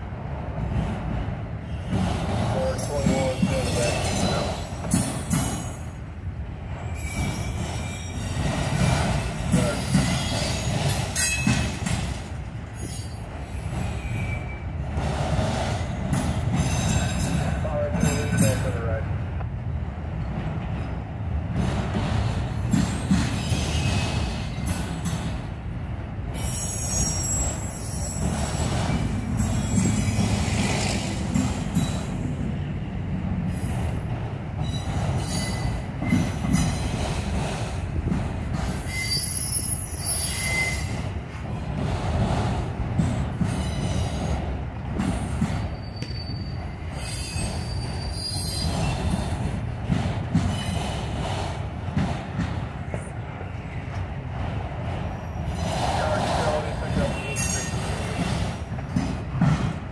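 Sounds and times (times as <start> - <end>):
freight train wheels rumbling: 0.0 - 59.9
high-pitched wheel squeal: 38.8 - 41.0, 45.7 - 49.0.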